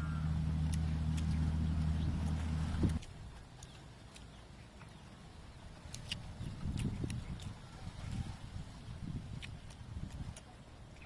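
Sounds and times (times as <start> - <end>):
low rumble: 0.0 - 3.4
mouth clicks and smacks chewing: 0.6 - 5.0, 5.8 - 8.4, 9.2 - 11.0.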